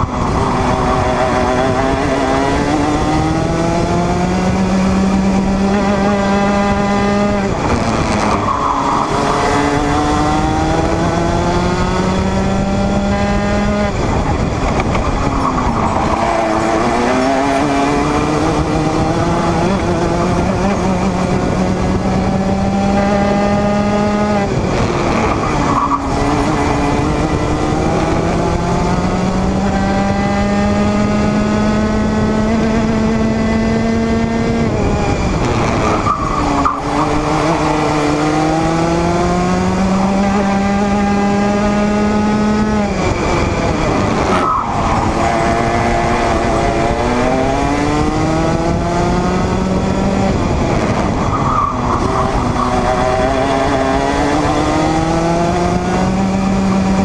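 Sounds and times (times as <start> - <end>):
kart engine revving: 0.0 - 57.0.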